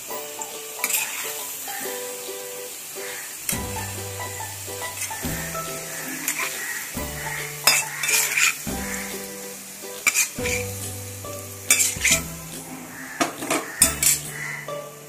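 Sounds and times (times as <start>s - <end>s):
onions sizzling in hot oil: 0.0s - 15.0s
metal spoon scraping a pan: 3.5s - 9.3s, 10.0s - 14.6s.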